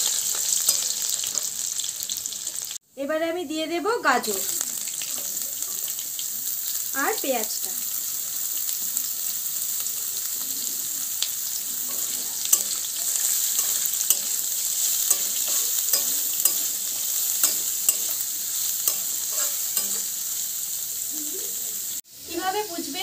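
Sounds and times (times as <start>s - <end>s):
vegetables sizzling in oil: 0.0s - 2.8s, 3.4s - 23.0s
metal spatula scraping pan: 11.8s - 20.4s.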